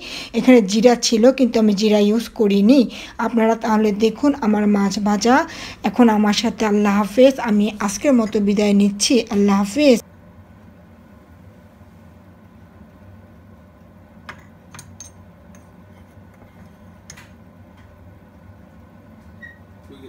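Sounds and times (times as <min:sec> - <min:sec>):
low steady hum: 0:00.0 - 0:20.0
spoon tapping on plate: 0:14.3 - 0:15.7.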